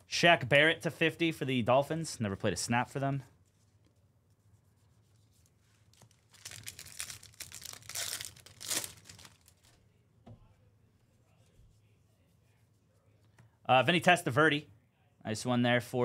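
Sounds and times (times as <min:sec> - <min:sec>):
foil wrapper crinkling and tearing: 0:05.9 - 0:09.8.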